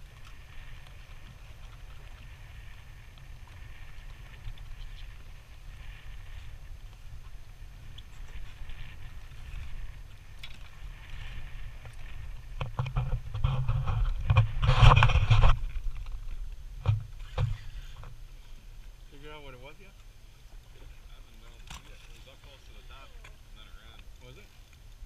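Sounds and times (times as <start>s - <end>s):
crackling rushing noise: 0.0s - 21.6s.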